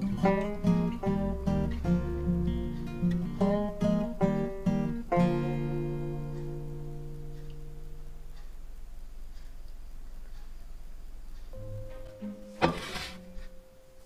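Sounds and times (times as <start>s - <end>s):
acoustic guitar strumming: 0.0s - 8.4s, 11.5s - 14.0s.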